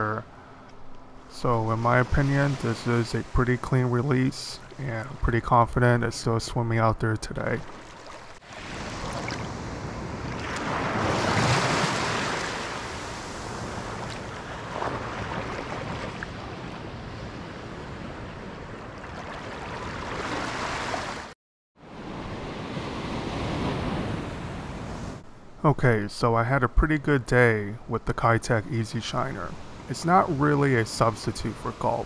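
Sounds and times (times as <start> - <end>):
ocean surf washing on sand: 1.5 - 5.0, 8.3 - 21.3.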